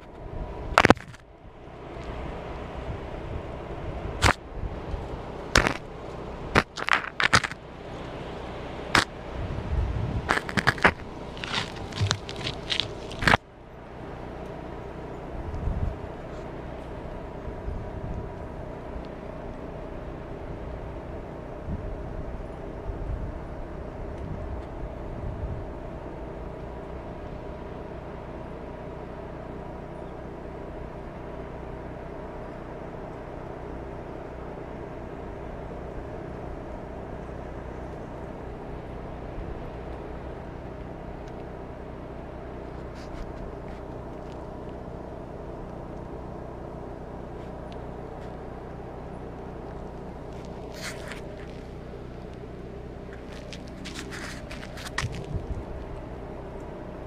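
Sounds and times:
engine humming: 0:00.0 - 0:57.0
camera handling scrapes: 0:50.4 - 0:51.6, 0:53.1 - 0:55.3.

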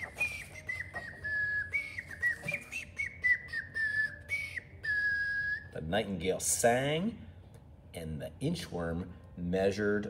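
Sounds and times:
person whistling birdsong: 0:00.0 - 0:05.8.

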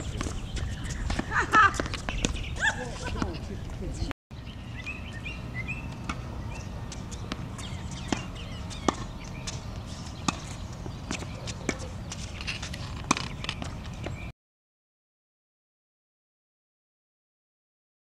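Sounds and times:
tennis balls struck and bouncing: 0:00.0 - 0:03.4, 0:05.8 - 0:14.3.

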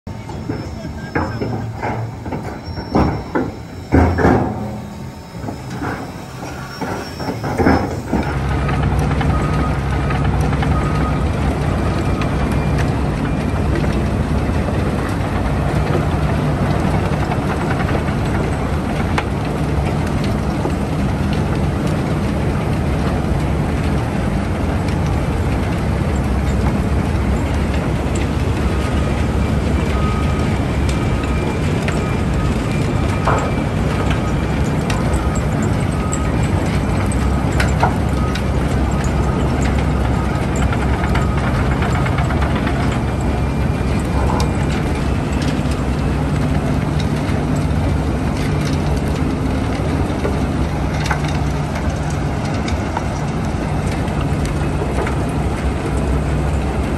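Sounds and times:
metallic clanks and knocks: 0:00.1 - 0:09.4
excavator mechanical rumble: 0:00.1 - 0:56.9.

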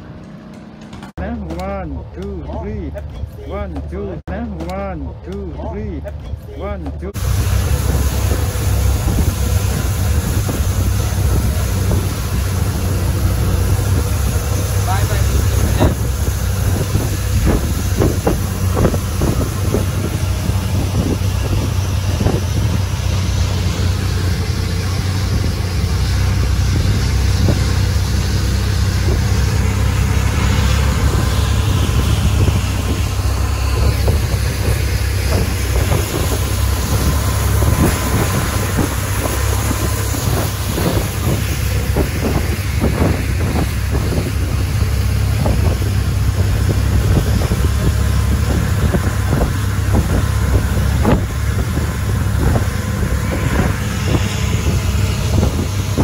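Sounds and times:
boat engine droning: 0:00.0 - 0:56.0
water rushing along hull: 0:07.0 - 0:56.0
wind buffeting microphone: 0:07.1 - 0:56.0.

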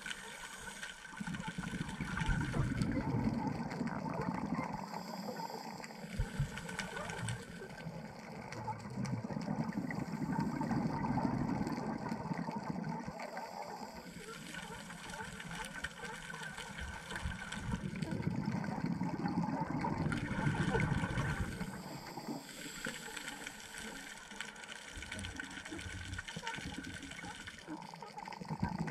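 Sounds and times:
underwater bubbles gurgling: 0:00.0 - 0:28.9.

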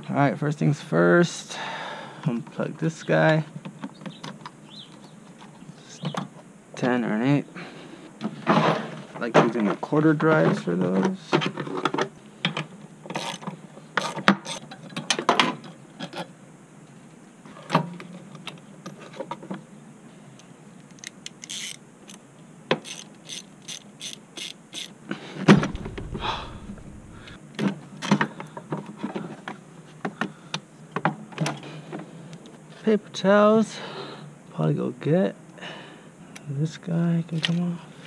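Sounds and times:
ratchet clicking: 0:21.3 - 0:22.2, 0:22.8 - 0:24.9
loud thud: 0:25.5 - 0:27.4.

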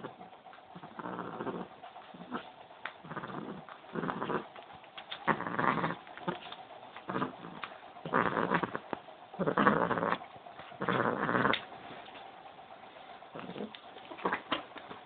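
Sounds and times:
cat growling: 0:00.0 - 0:04.6, 0:05.2 - 0:11.7, 0:13.3 - 0:14.6.

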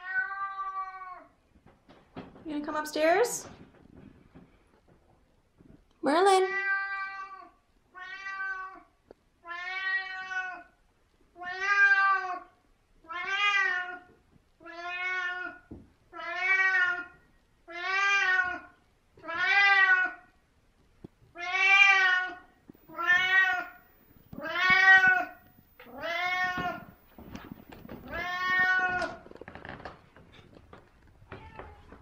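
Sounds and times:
cat meowing: 0:06.4 - 0:08.8, 0:09.4 - 0:10.7, 0:13.1 - 0:15.6, 0:17.7 - 0:20.2, 0:21.3 - 0:29.4, 0:31.2 - 0:32.0.

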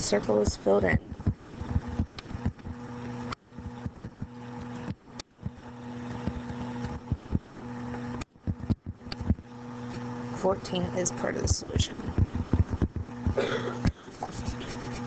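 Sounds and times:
low electrical hum: 0:00.0 - 0:15.0
stylus tapping on screen: 0:12.1 - 0:14.0.

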